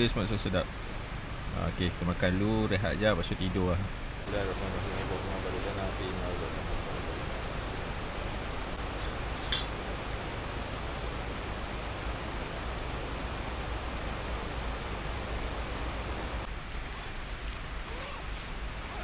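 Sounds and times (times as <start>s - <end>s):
sharp clink: 9.4s - 9.8s.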